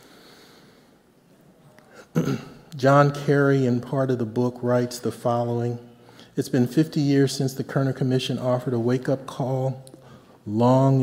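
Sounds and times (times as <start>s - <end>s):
soft breath into microphone: 0.0s - 1.1s, 5.9s - 6.4s, 10.0s - 10.4s.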